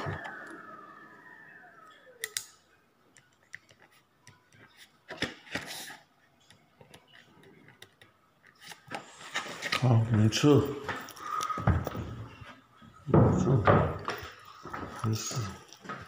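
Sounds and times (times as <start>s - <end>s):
siren winding down: 0.0s - 2.4s.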